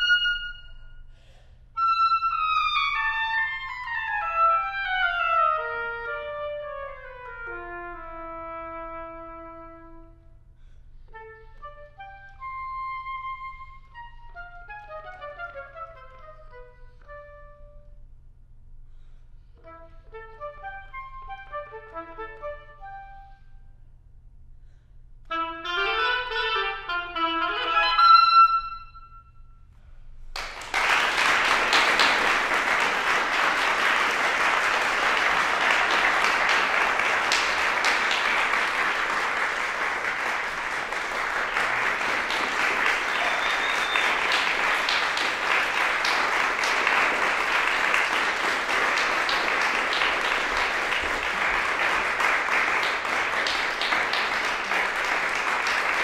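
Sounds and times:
solo oboe playing: 0.0 - 1.1, 1.8 - 10.4, 11.0 - 18.0, 19.6 - 23.7, 25.3 - 29.5
audience applause: 30.4 - 56.0.

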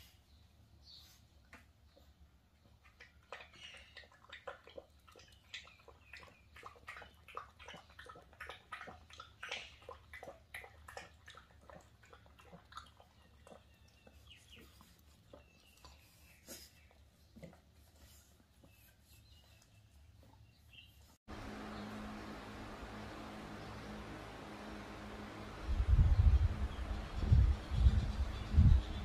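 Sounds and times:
puppies eating and licking: 1.0 - 21.7.

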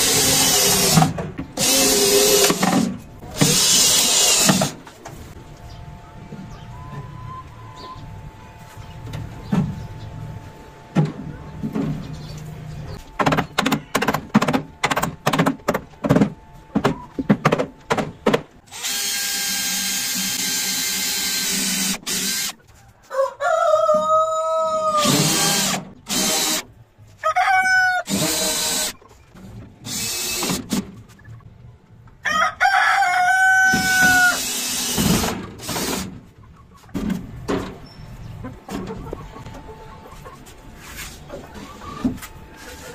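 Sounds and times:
power drill running: 0.0 - 4.7, 18.7 - 22.5, 25.0 - 26.6, 28.1 - 28.9, 29.9 - 30.6, 34.0 - 36.0
rooster crowing: 22.9 - 25.1, 27.2 - 28.1, 32.2 - 34.4.

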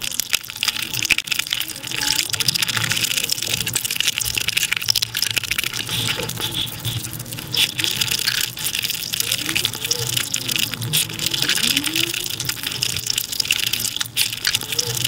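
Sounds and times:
sped-up eating mouth sounds: 5.4 - 15.0.

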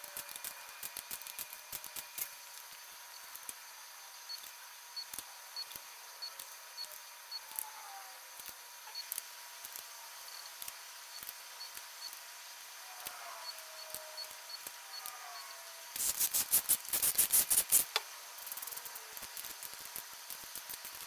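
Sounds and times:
faint steady tone: 2.5 - 16.0
ratchet and wrench metal clicks: 16.0 - 21.0.

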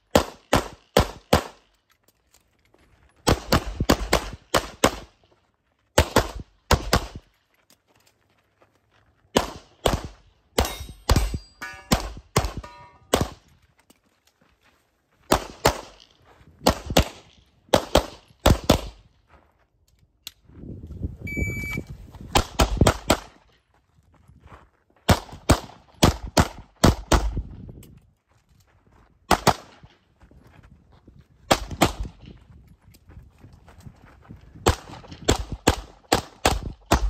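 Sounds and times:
pistol shots: 0.1 - 1.7, 3.2 - 5.1, 6.0 - 7.2, 9.3 - 13.4, 15.3 - 16.0, 16.6 - 19.0, 29.3 - 29.8, 34.6 - 37.0
brief ringing tone: 21.3 - 21.9.

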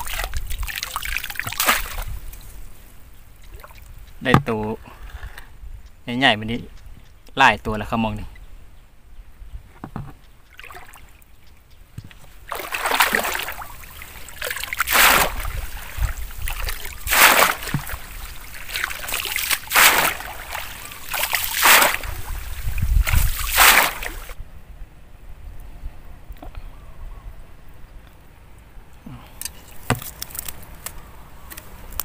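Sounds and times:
net splashing through pond water: 0.0 - 2.3, 3.4 - 3.9, 10.5 - 11.2, 12.4 - 24.4.

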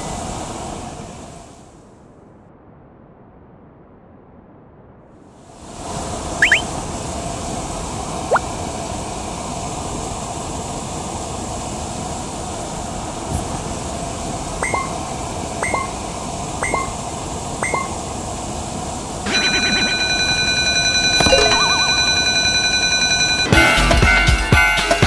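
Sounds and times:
short rising chirps: 6.4 - 6.7, 14.6 - 15.0, 15.6 - 16.0, 16.6 - 17.0
railroad crossing warning bell: 19.2 - 25.0.

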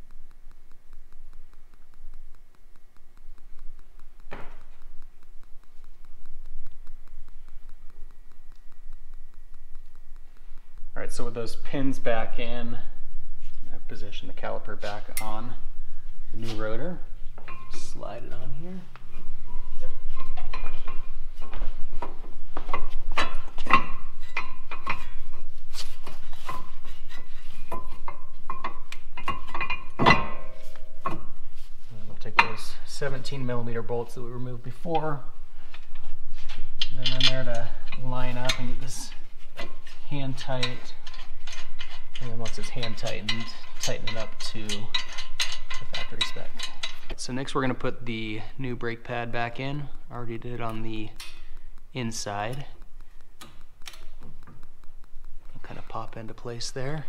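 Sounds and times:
faint even ticking: 0.0 - 36.0, 36.6 - 57.0
low hum: 0.0 - 57.0
hands handling metal parts: 19.0 - 31.8.

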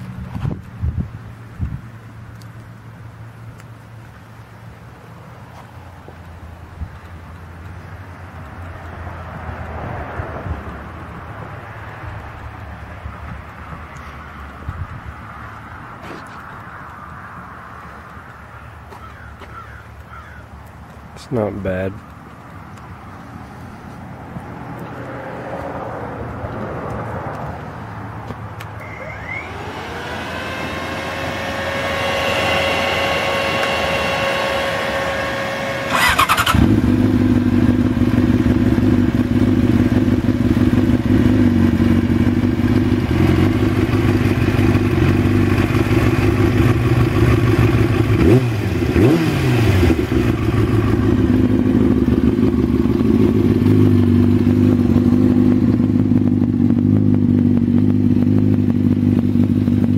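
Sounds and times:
motorcycle engine idling: 17.1 - 22.9, 28.5 - 49.0, 49.9 - 59.9
electric starter whine: 28.6 - 37.3.

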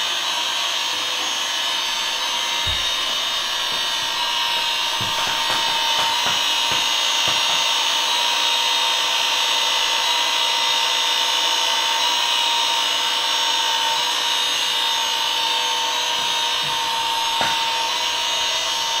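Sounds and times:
toy leaf blower motor whirring: 0.0 - 19.0.

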